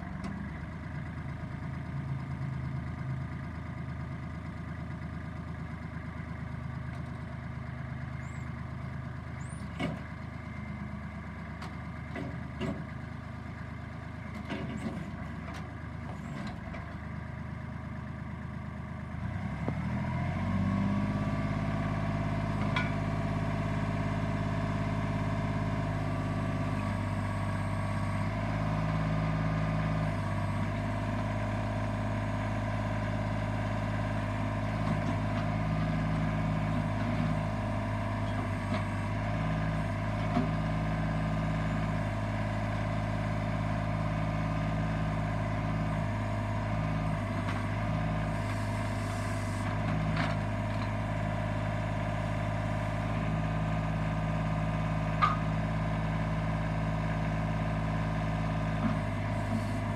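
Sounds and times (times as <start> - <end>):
diesel engine revving: 19.2 - 59.9.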